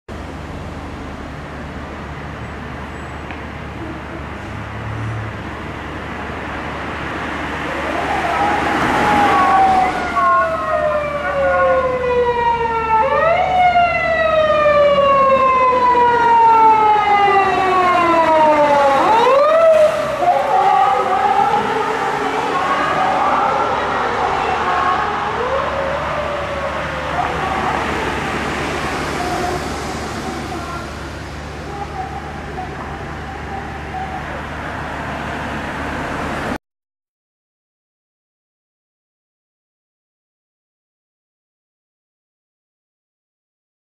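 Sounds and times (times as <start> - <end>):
street traffic rumble: 0.1 - 36.6
police siren wailing: 7.5 - 35.2.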